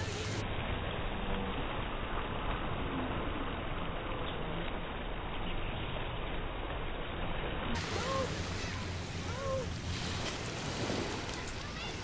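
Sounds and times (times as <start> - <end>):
waves breaking on shingle: 7.8 - 12.0.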